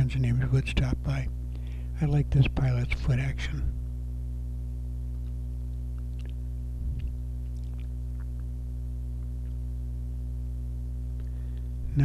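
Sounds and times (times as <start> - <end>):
low electrical hum: 0.0 - 12.0
soft low sound: 5.0 - 12.0.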